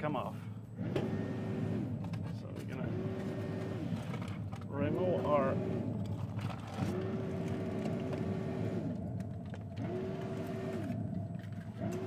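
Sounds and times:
steady low hum: 0.0s - 12.0s
small electric motor whirring: 2.8s - 12.0s.

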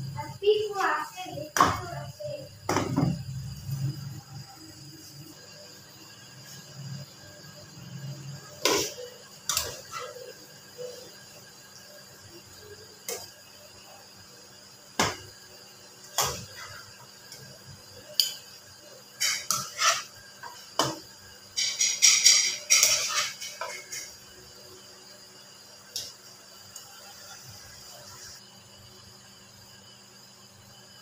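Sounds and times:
utensil scraping a frying pan: 19.2s - 20.6s, 21.6s - 24.2s.

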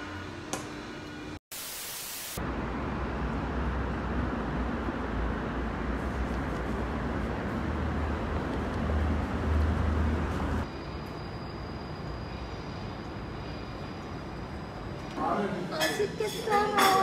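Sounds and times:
passing vehicles: 2.4s - 10.7s
low traffic rumble: 2.4s - 10.9s
quiet street ambience: 2.4s - 17.0s.

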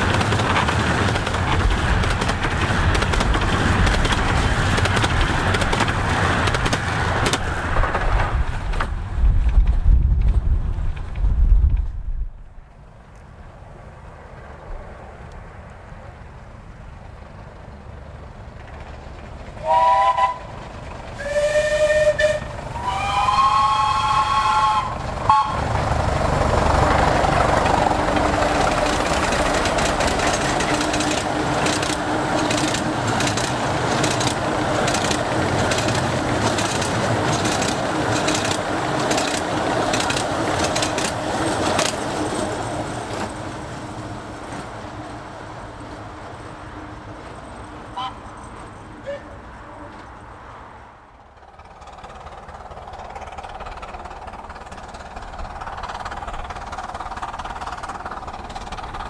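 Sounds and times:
wheels clicking on rails: 0.0s - 12.1s, 16.9s - 50.4s, 51.1s - 59.0s
train passing at speed: 0.0s - 59.0s
steam locomotive whistle: 19.6s - 20.5s, 21.2s - 25.7s, 47.9s - 48.3s, 49.0s - 49.4s.

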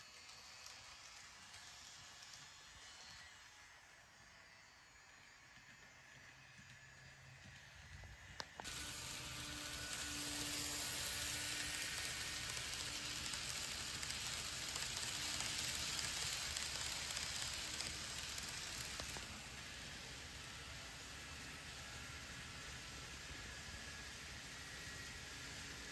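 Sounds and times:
train wheels rattling on rail: 9.9s - 19.3s.

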